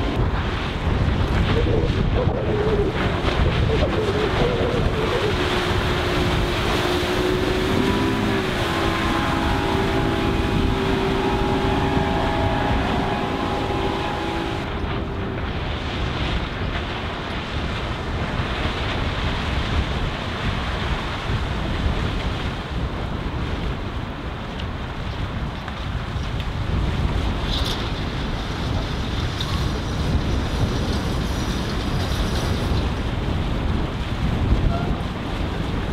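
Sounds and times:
wind noise on microphone: 0:00.0 - 0:35.9
outboard motor running: 0:04.4 - 0:17.0.

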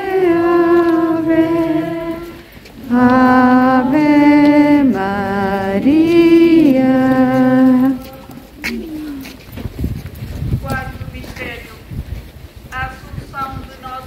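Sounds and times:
procession singing a hymn: 0:00.0 - 0:08.8.

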